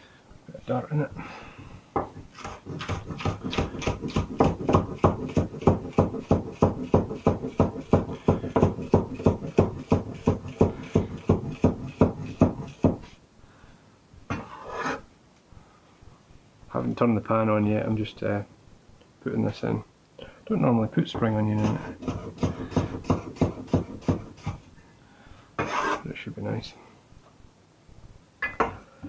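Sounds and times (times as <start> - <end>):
cleaver chopping on wooden board: 2.0 - 13.0, 21.6 - 24.6
blade scraping across board: 14.4 - 15.1, 25.6 - 26.1.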